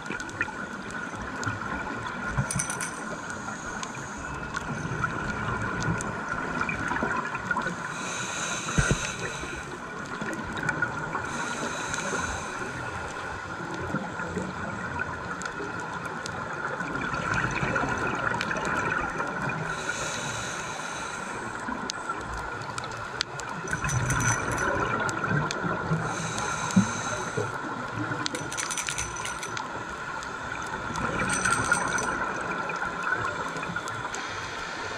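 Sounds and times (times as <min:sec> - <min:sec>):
steady underwater hum: 0:00.0 - 0:34.9
regulator inhalation hiss: 0:07.9 - 0:09.8, 0:11.3 - 0:12.9, 0:19.7 - 0:21.7, 0:26.1 - 0:27.6.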